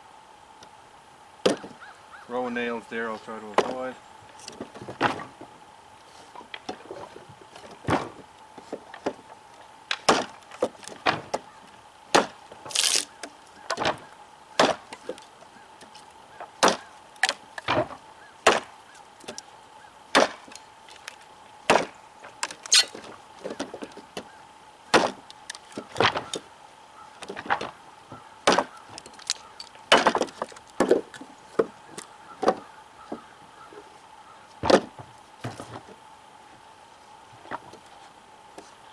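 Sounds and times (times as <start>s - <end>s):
knife chopping into wood: 9.9s - 10.4s, 12.1s - 13.0s, 14.6s - 15.2s, 16.6s - 17.9s, 18.5s - 18.7s, 20.2s - 20.5s, 21.7s - 21.9s, 24.9s - 25.2s, 28.5s - 28.7s, 29.9s - 31.0s.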